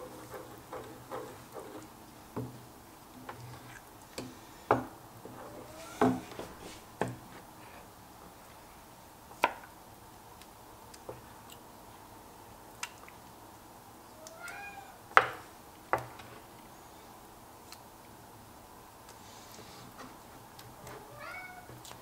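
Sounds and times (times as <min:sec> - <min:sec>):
cat meow: 0:05.5 - 0:06.2, 0:14.2 - 0:15.0, 0:20.9 - 0:21.8.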